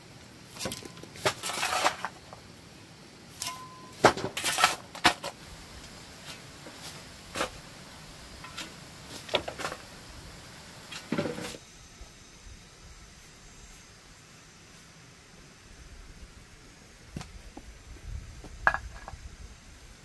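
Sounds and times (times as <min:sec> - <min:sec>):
rocks and soil knocking and scraping: 0:00.5 - 0:02.5, 0:03.3 - 0:07.6, 0:08.3 - 0:10.0, 0:17.1 - 0:19.3.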